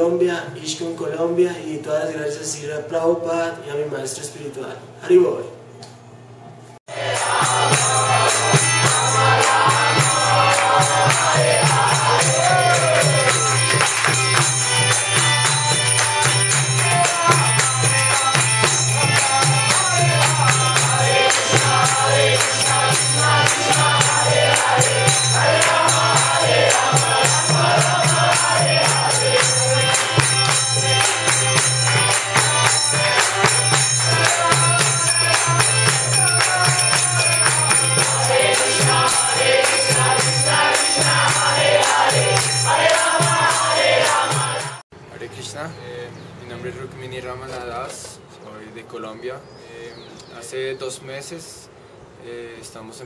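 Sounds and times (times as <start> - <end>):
group chanting: 6.9 - 14.1, 14.9 - 44.8
drum: 6.9 - 44.8
small hand cymbals ringing: 7.0 - 44.8.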